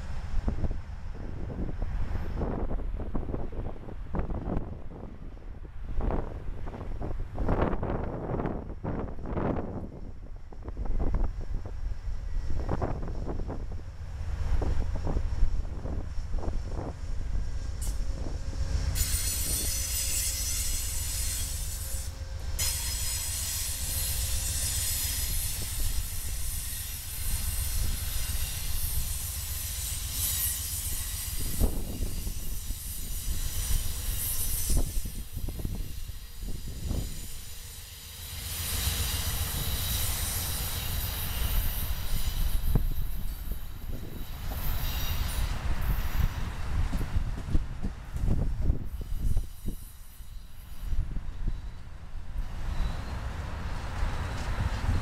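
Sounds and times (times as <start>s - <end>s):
low train rumble: 0.0s - 55.0s
train wheels squealing: 14.3s - 46.8s, 48.6s - 55.0s.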